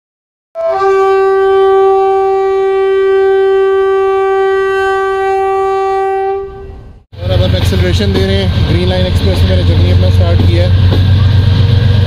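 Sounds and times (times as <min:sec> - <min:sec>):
locomotive horn blast: 0:00.6 - 0:07.0.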